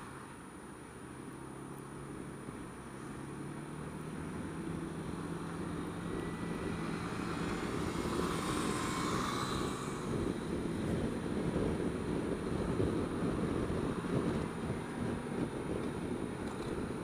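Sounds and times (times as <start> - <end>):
road noise: 0.0 - 17.0
scooter engine humming: 0.0 - 17.0
wind noise: 4.3 - 17.0.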